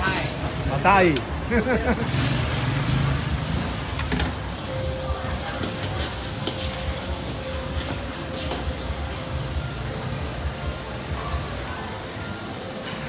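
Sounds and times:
food sizzling in a wok: 4.6s - 13.0s.

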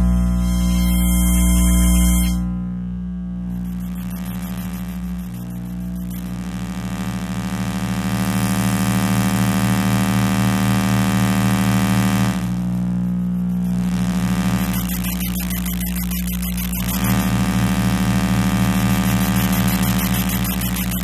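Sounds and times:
electrical interference buzzing hum: 0.0s - 21.0s.

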